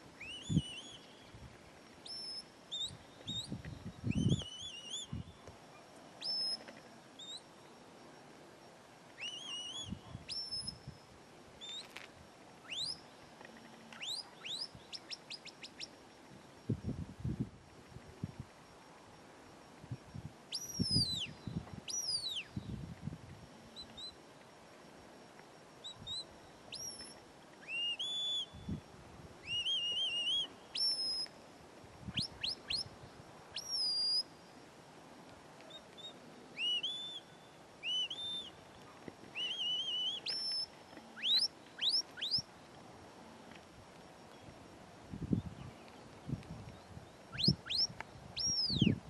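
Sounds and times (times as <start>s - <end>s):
shrill shepherd's whistle: 0.2s - 1.1s, 2.0s - 5.3s, 6.2s - 6.6s, 9.2s - 10.9s, 12.7s - 13.0s, 14.0s - 15.8s, 20.5s - 22.5s, 25.8s - 28.7s, 29.4s - 31.3s, 32.1s - 32.9s, 33.5s - 34.3s, 36.0s - 38.6s, 39.3s - 42.4s, 47.3s - 49.0s.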